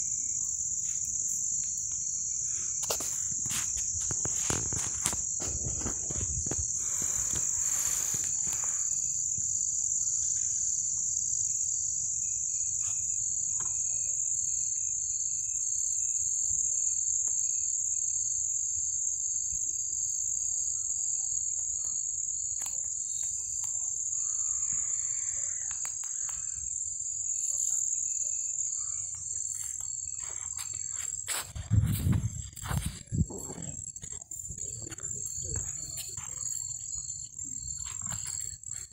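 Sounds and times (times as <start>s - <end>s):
crickets chirring: 0.0s - 38.9s
low rumble of handling or wind: 31.6s - 35.6s.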